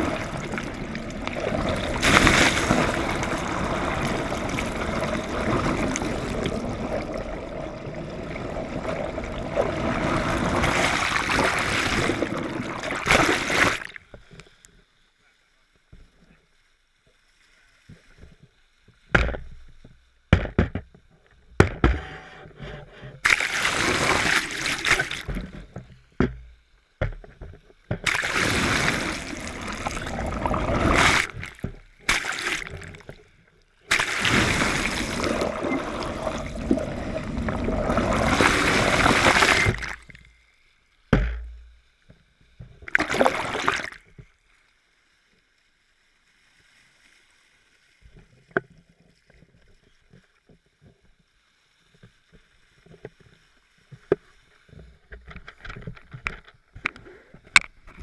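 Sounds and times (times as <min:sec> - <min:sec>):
seawater rushing and splashing: 0:00.0 - 0:13.9, 0:23.2 - 0:25.3, 0:28.1 - 0:32.9, 0:33.9 - 0:40.1, 0:42.9 - 0:44.0
water slapping against housing: 0:01.3 - 0:06.6, 0:27.9 - 0:32.9, 0:33.9 - 0:40.0, 0:42.9 - 0:44.0.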